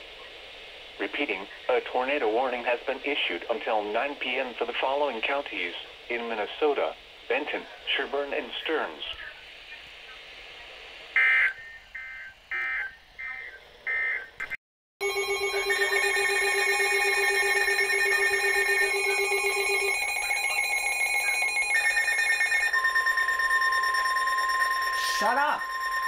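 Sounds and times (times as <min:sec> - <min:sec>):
weather alert radio alarms: 0:01.0 - 0:10.2, 0:11.1 - 0:26.0
digital data bursts from radio: 0:01.0 - 0:14.4, 0:15.0 - 0:26.0
steady warning alert tone: 0:11.2 - 0:14.4, 0:15.0 - 0:26.0.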